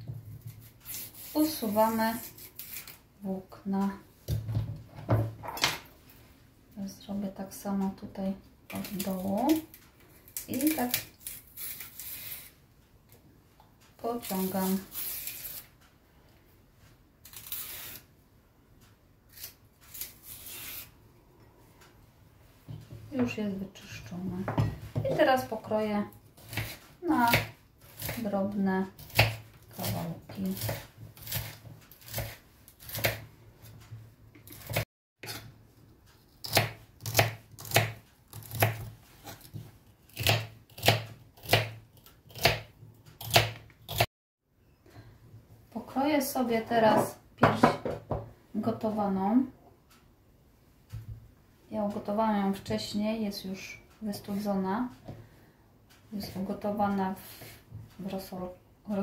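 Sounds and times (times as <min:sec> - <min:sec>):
knife slicing celery on wooden board: 0:29.0 - 0:33.2.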